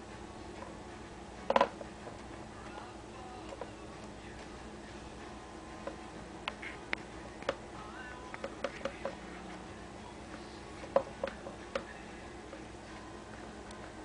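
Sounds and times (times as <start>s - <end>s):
turtle shells tapping plastic dish: 8.3s - 9.2s.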